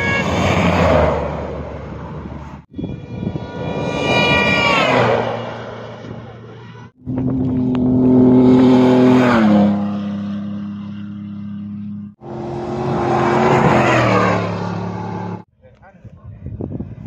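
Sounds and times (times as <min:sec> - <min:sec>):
rally car speeding past: 0:07.1 - 0:15.4.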